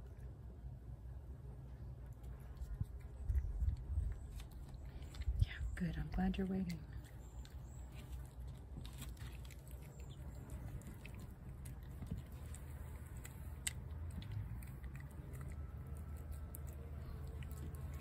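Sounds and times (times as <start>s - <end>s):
low steady rumble: 0.0s - 18.0s
cat chewing wet food: 2.0s - 18.0s
teeth clicking on plate: 6.6s - 18.0s.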